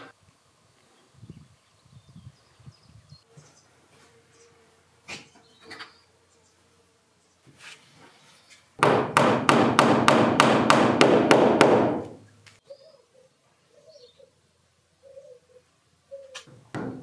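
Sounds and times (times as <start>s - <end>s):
hammer blows on wood: 8.8s - 12.2s.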